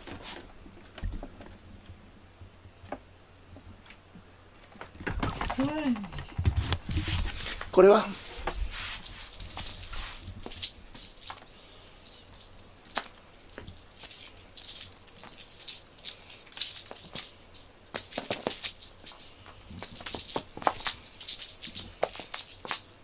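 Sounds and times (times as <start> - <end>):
cat toys rattling and rustling: 4.9 - 7.6, 8.3 - 23.0.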